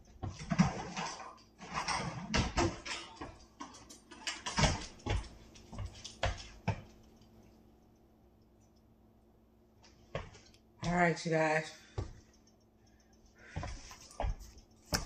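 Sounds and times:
kitchen knocks and clanks: 0:00.0 - 0:07.0.

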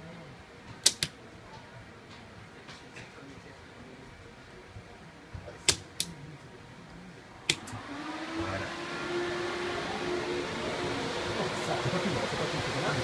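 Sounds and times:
cooling fans whirring: 0:00.0 - 0:13.0
circuit breakers snapping on: 0:00.8 - 0:01.2, 0:05.6 - 0:06.2, 0:07.5 - 0:07.8.

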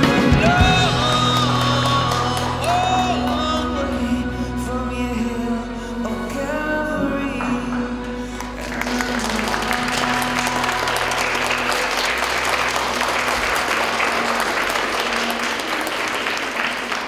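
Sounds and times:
audience applauding: 0:00.0 - 0:03.6, 0:08.3 - 0:17.0
held music notes: 0:00.0 - 0:17.0.

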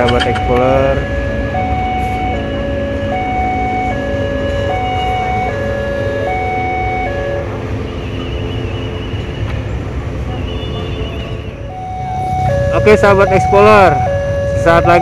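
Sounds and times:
level crossing two-tone alarm: 0:00.0 - 0:07.5, 0:11.7 - 0:15.0.

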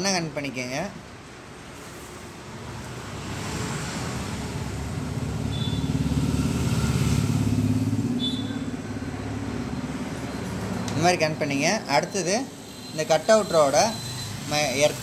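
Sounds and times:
passing vehicle engine hum: 0:03.0 - 0:11.2.

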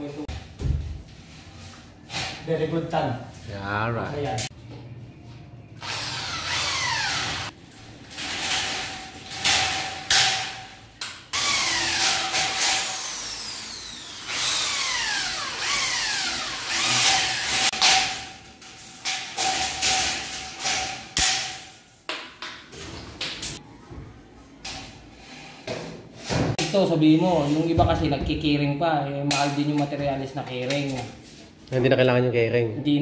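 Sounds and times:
electric drill whining: 0:05.8 - 0:07.5, 0:12.8 - 0:17.6.

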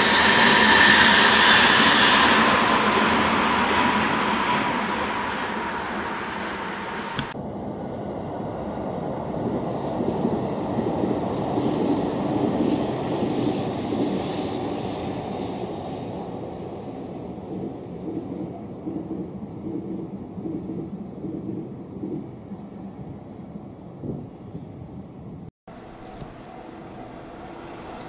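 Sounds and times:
train running past: 0:00.0 - 0:19.8, 0:25.7 - 0:28.0
steady train whine: 0:00.0 - 0:20.7, 0:25.0 - 0:28.0
low rumbling noise: 0:16.3 - 0:28.0.

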